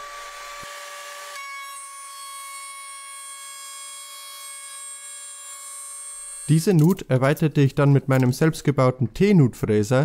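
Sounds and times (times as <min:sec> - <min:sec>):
router bit cutting wood: 0:00.0 - 0:06.6.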